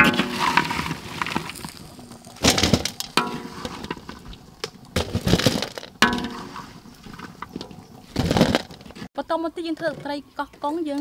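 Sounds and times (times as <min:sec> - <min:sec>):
metal spatula scraping a wok: 0:00.0 - 0:01.5, 0:03.2 - 0:04.1, 0:06.0 - 0:07.4.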